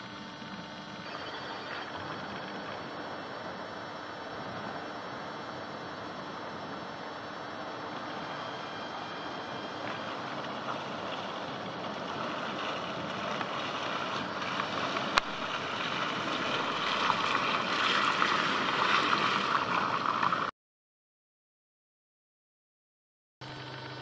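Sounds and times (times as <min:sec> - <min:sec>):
car driving through slushy mud: 0:09.9 - 0:20.5.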